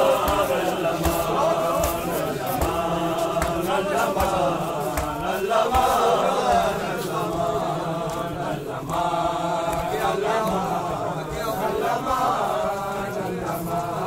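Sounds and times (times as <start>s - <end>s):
men chanting in unison: 0.0s - 14.0s
hands beating on chests: 0.2s - 6.0s.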